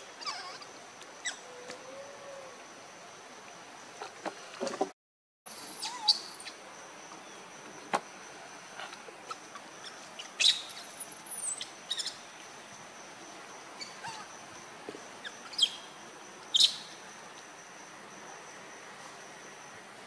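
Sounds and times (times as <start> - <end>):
birds chirping: 8.8 - 12.4.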